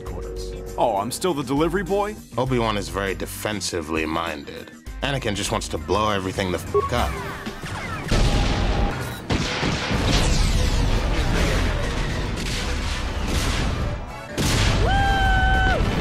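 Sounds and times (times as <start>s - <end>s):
explosion blasts: 8.1s - 16.0s
rumbling blast of fire: 8.1s - 16.0s.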